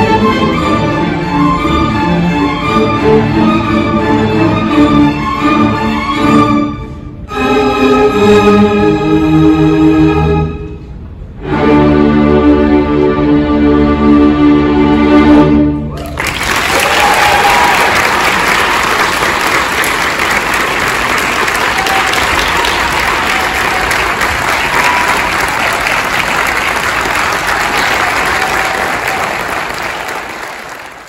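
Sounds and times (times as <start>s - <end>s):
short cheers: 15.9s - 19.2s, 21.4s - 25.9s, 27.7s - 30.4s
audience applauding: 16.0s - 31.0s.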